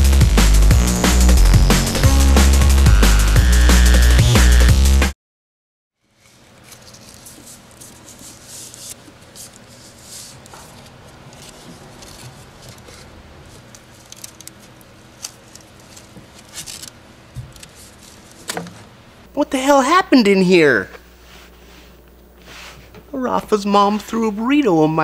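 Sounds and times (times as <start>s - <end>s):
rubbing and rustling of wiring sleeve: 6.0s - 18.6s.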